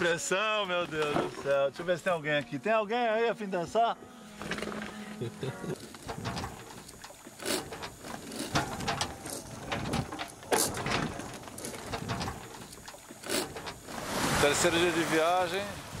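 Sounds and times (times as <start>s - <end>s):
wind: 0.0s - 16.0s
boat rigging creaking and knocking: 0.7s - 2.5s, 4.3s - 16.0s
water: 4.2s - 16.0s.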